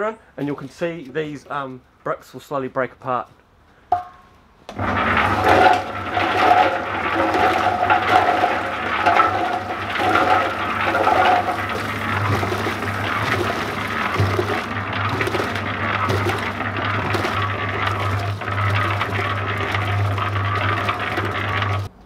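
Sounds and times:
concrete mixer humming: 4.7 - 22.0.

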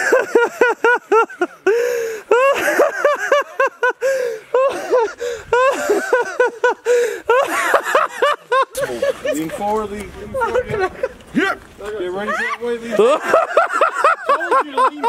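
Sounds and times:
high-pitched breathless laughter: 0.0 - 9.4.

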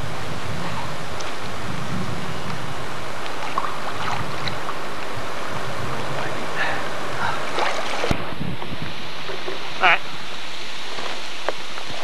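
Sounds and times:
river water rushing: 0.0 - 12.0
wind on microphone: 0.0 - 12.0
faint water splashes: 3.2 - 8.3.

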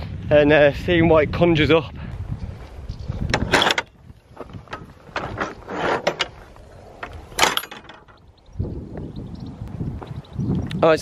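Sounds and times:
metal gate latch clanking: 3.3 - 3.9, 4.7 - 8.2.

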